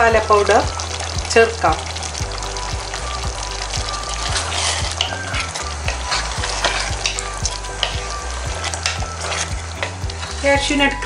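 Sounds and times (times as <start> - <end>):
gravy sizzling: 0.0 - 11.0
wooden spatula scraping pot: 4.2 - 11.0.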